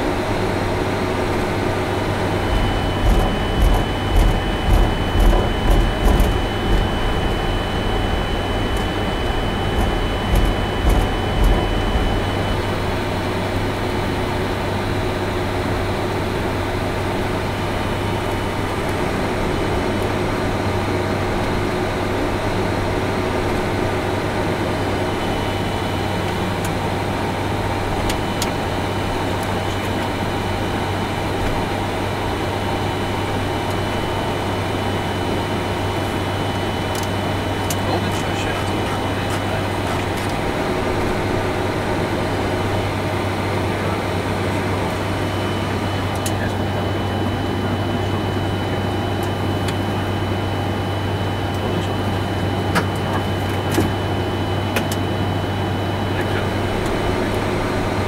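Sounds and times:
air-conditioning and equipment hum: 0.0 - 58.0
jet engines idling: 0.0 - 58.0
low thumps: 2.4 - 13.0.

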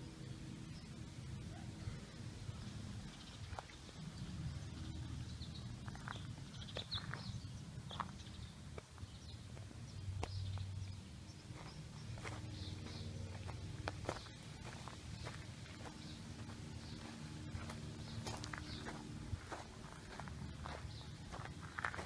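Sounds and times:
low steady rumble: 0.0 - 22.0
footsteps crunching on dirt: 3.4 - 4.0, 5.8 - 10.8, 11.4 - 22.0.

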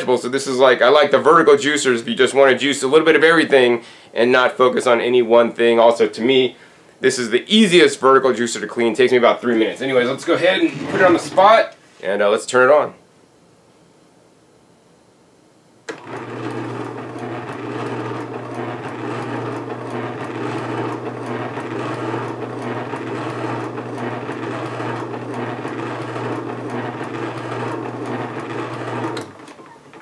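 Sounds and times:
juicer motor hum: 15.9 - 30.0.

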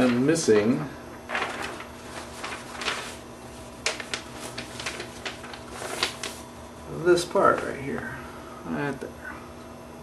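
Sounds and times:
faint steady hum: 0.0 - 10.0
paper and small parts handled: 1.3 - 6.5.

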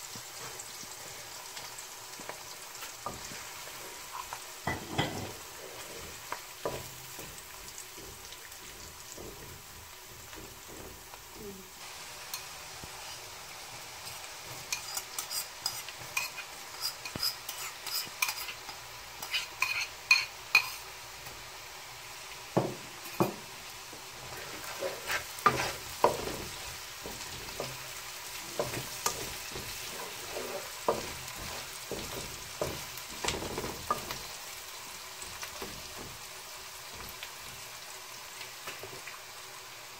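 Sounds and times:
oil sizzling in a wok: 0.0 - 39.9
spatula scraping a pan: 0.1 - 11.1, 14.0 - 20.9, 24.1 - 34.4.

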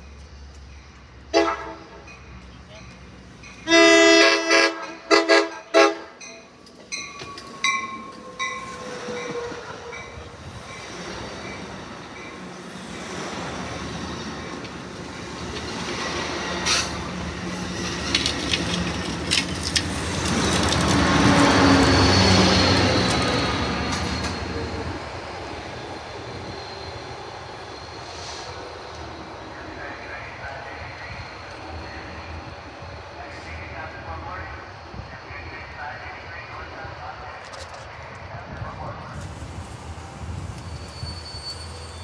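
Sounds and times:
diesel locomotive passing: 0.0 - 42.0
train cars rolling past: 0.0 - 42.0
train horn blasts: 1.3 - 2.0, 3.6 - 6.2
train wheel clicks: 17.8 - 21.4.

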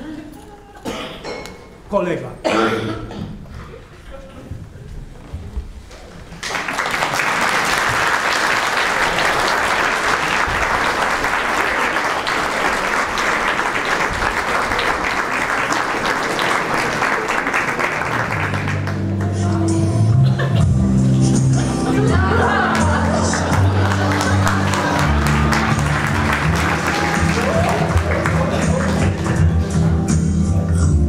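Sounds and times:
audience applauding: 6.3 - 19.4, 21.5 - 30.3.

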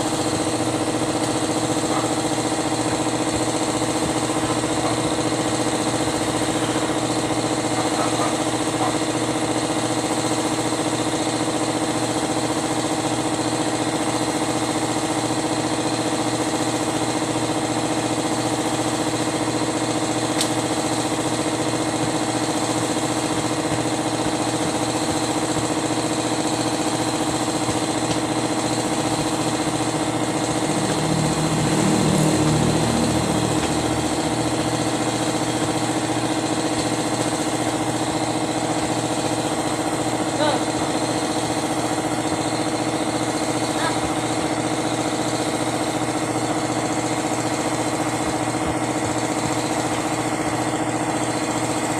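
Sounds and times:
engine running steadily: 0.0 - 51.9.

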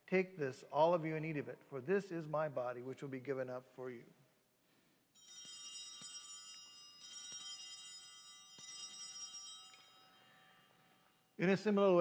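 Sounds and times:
altar bells ringing: 5.2 - 11.7.

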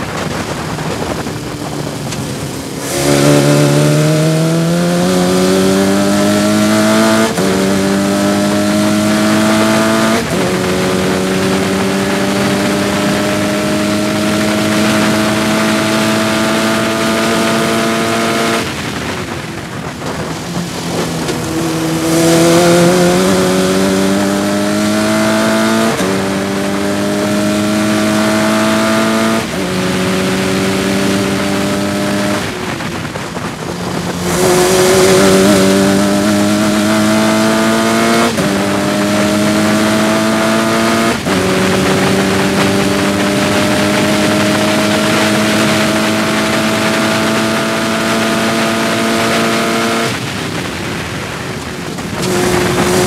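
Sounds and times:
racing car engine revving: 0.0 - 50.4, 52.0 - 53.0.

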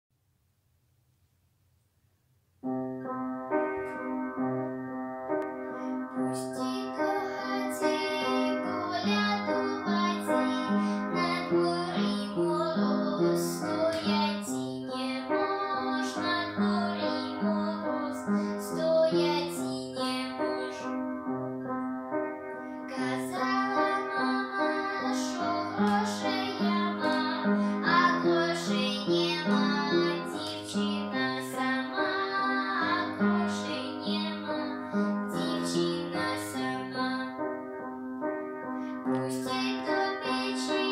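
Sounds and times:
piano accompaniment: 2.5 - 40.9
girl singing a folk song: 5.8 - 21.1, 22.8 - 37.6, 38.9 - 40.9.

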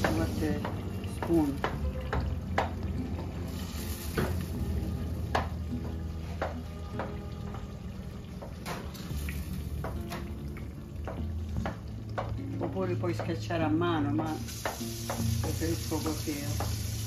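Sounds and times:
faint sizzle: 0.0 - 5.3, 12.1 - 17.0.

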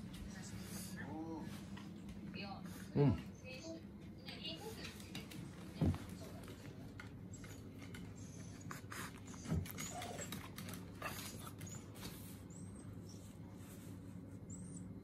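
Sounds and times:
dog whining in high squeaks: 9.3 - 10.4.

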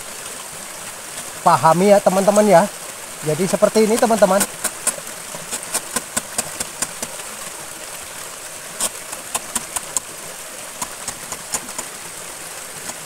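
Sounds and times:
knife shaving plant stalk: 8.8 - 10.0.

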